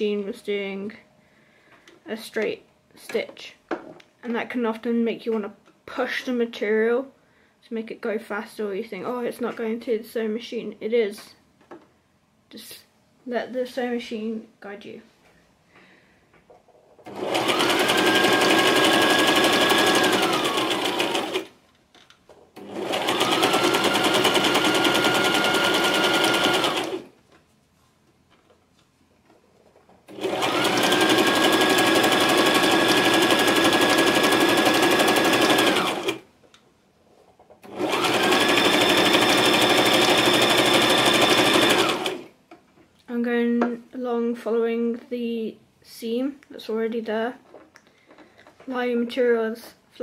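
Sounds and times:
sewing machine running: 17.1 - 21.5, 22.6 - 27.1, 30.1 - 36.2, 37.6 - 42.3.

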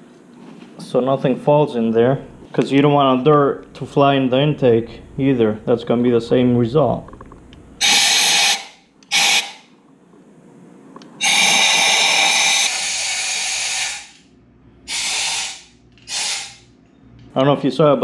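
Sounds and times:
air blower hissing with whine: 7.7 - 9.7, 11.1 - 16.8.

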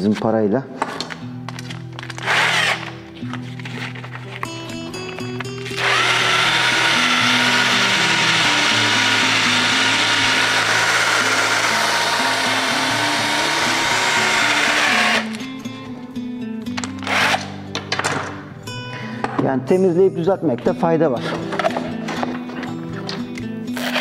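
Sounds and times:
power tool whining: 2.2 - 3.0, 5.2 - 15.4, 17.0 - 17.6, 23.7 - 24.0.

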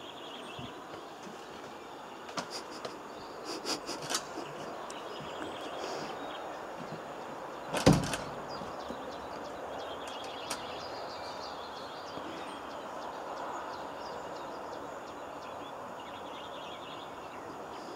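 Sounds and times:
outdoor background noise: 0.0 - 17.9
clatter of knocks: 7.7 - 8.9.

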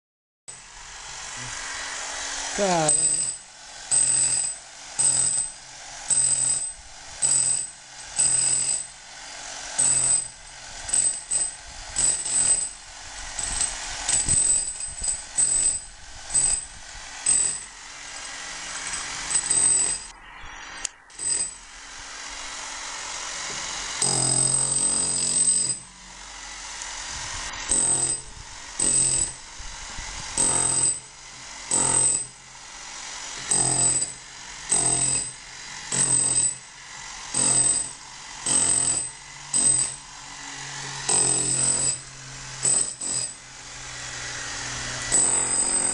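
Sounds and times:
rotary hammer chipping plaster: 2.9 - 8.9, 23.4 - 25.8, 27.7 - 29.4, 30.4 - 31.1, 33.3 - 40.0, 40.9 - 43.4, 45.0 - 45.9.

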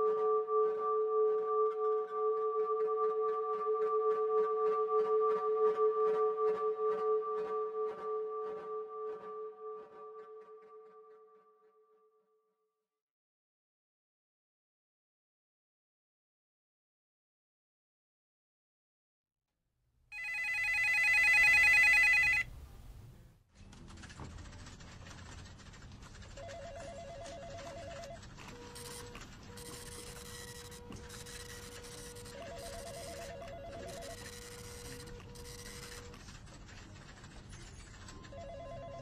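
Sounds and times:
faint room noise: 20.1 - 39.0
electronic phone ringer trilling: 20.2 - 22.5, 28.8 - 36.1
fast-trilling telephone bell: 20.2 - 22.5, 26.4 - 28.2, 31.5 - 36.1, 38.0 - 39.0.

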